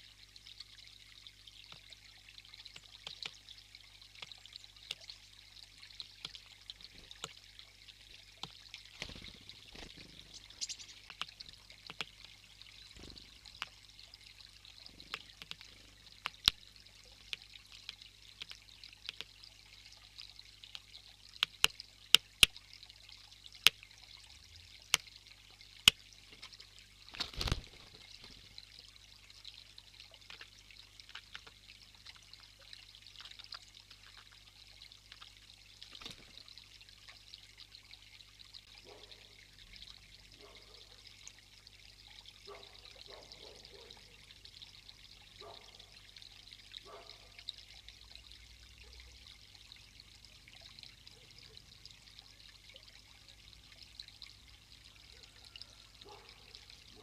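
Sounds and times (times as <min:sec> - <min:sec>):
water feature trickling: 0:00.0 - 0:57.0
flurry of wings: 0:08.9 - 0:11.2, 0:27.1 - 0:28.5, 0:35.9 - 0:36.4
woodpecker pecking on wood: 0:15.0 - 0:16.6, 0:17.2 - 0:19.3.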